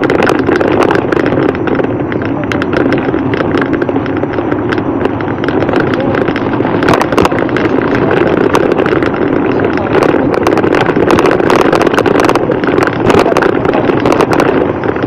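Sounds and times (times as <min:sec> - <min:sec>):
bicycle rattling on dirt road: 0:00.0 - 0:15.0
wind rushing over microphone: 0:00.0 - 0:15.0.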